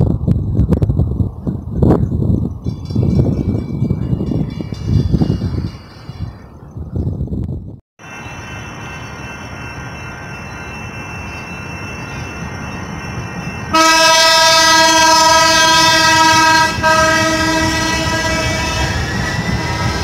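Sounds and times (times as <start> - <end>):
trolley rumbling past: 8.0 - 20.0
trolley horn: 13.7 - 20.0.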